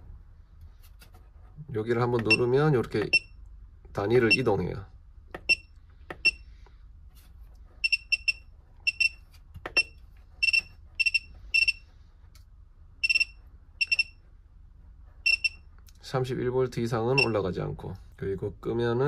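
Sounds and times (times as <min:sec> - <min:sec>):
short high electronic beeps: 0:13.0 - 0:14.2.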